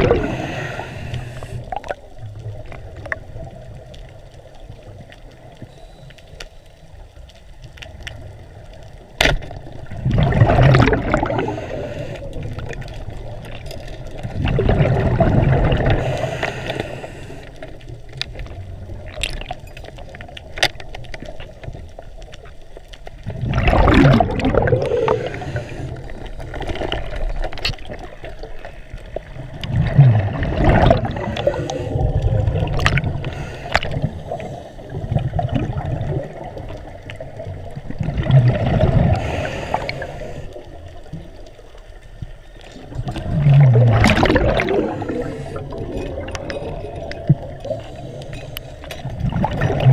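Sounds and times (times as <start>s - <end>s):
muffled underwater wash: 0.0s - 49.9s
underwater water rush: 0.0s - 49.9s
sharp underwater clicks: 12.2s - 28.5s, 29.1s - 34.2s.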